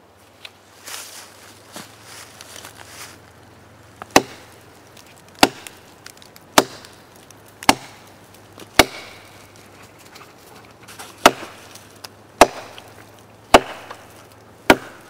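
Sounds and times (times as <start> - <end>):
knife chopping into log: 4.0 - 4.5, 5.4 - 5.8, 6.6 - 6.9, 7.6 - 8.0, 8.6 - 9.3, 11.2 - 11.6, 12.4 - 12.9, 13.5 - 14.0, 14.7 - 15.0.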